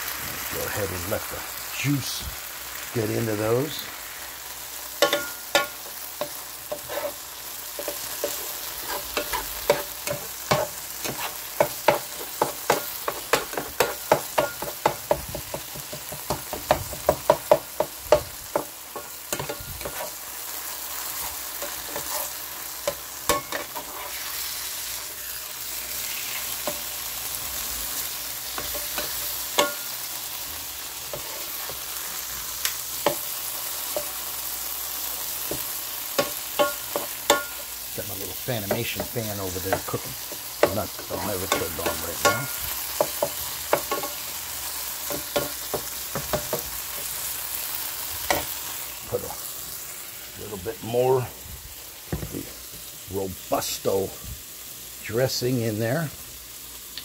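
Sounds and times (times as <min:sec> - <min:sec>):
meat and peppers sizzling: 0:00.0 - 0:57.0
spatula scraping a pan: 0:04.9 - 0:27.3, 0:27.9 - 0:34.4, 0:38.3 - 0:48.8.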